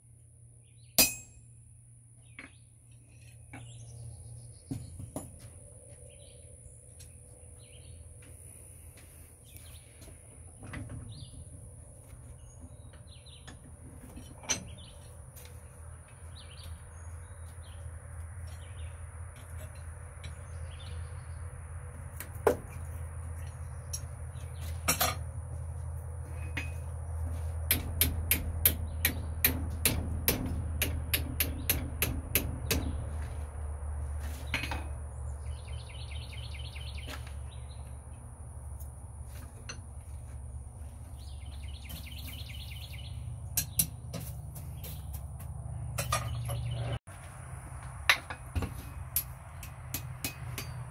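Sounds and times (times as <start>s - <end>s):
hammer ringing on steel: 1.0s - 1.5s.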